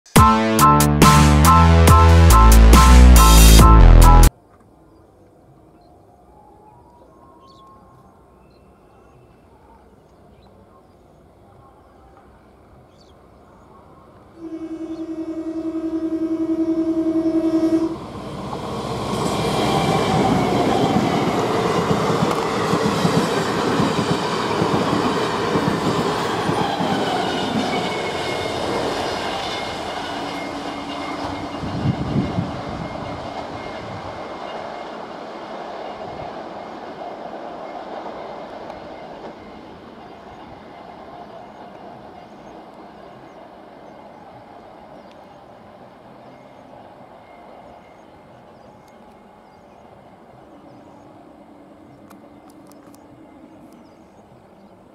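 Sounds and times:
train passing close: 0:00.1 - 0:04.3, 0:12.1 - 0:54.9
distant train running: 0:12.0 - 0:54.9
train horn: 0:14.4 - 0:18.8, 0:26.8 - 0:34.2.

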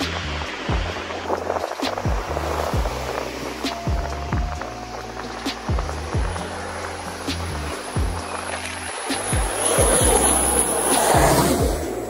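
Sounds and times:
aircraft rushing overhead: 0:00.0 - 0:12.0
music with pulsing beat: 0:00.0 - 0:12.0.

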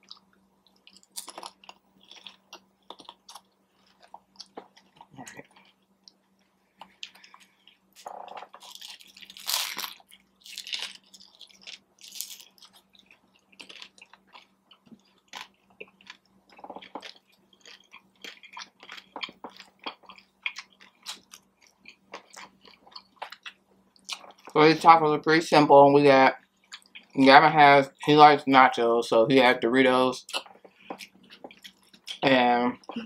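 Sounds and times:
chewing with small crackles: 0:00.0 - 0:24.6, 0:26.4 - 0:27.2, 0:30.2 - 0:33.0
crunching bites of tacos: 0:00.0 - 0:24.6.

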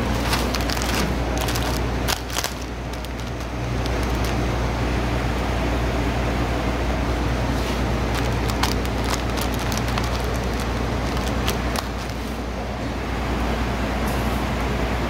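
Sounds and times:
packing machine humming: 0:00.0 - 0:05.6, 0:06.7 - 0:13.3
sharp clicks and ticks: 0:00.6 - 0:04.4, 0:08.1 - 0:12.2.

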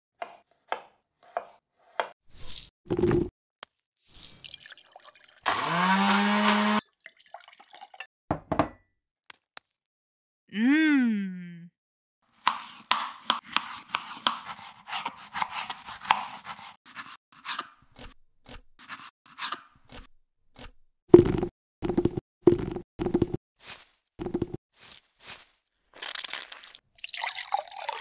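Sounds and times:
knife chopping on wooden board: 0:00.2 - 0:02.2, 0:12.4 - 0:20.0.

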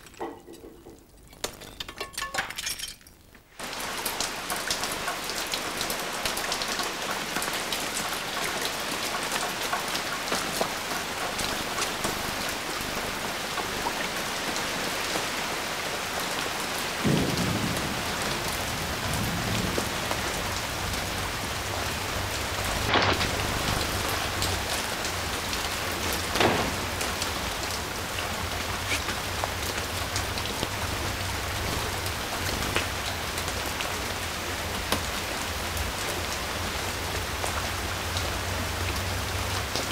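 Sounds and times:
heavy rain falling: 0:03.6 - 0:39.9
sharp cracks: 0:22.8 - 0:24.6.

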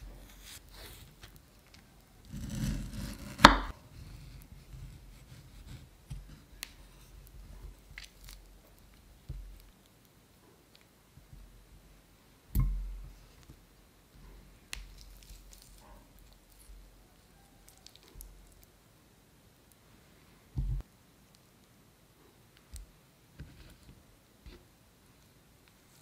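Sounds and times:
knife cutting tomato: 0:00.0 - 0:08.4.

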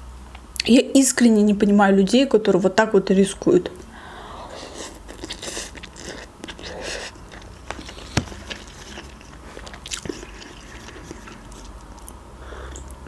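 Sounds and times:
noodle slurp: 0:04.6 - 0:12.9
wet chewing: 0:04.6 - 0:13.0.

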